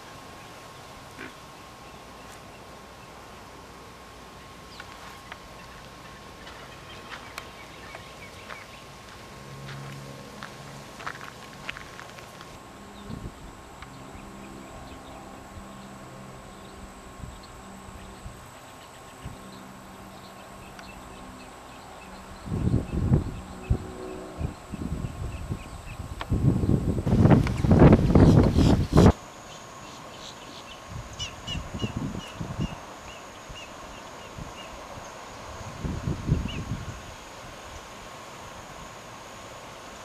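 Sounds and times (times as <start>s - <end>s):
tape hiss and hum: 0.0s - 40.0s
thin steady whine: 0.0s - 40.0s
bird chirping: 4.4s - 9.0s, 27.5s - 35.2s.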